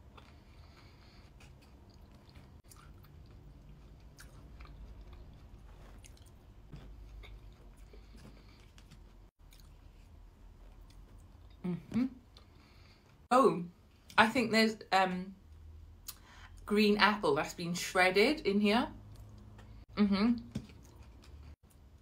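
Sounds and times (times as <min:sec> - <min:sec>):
person chewing: 0:00.0 - 0:13.3, 0:20.4 - 0:21.8.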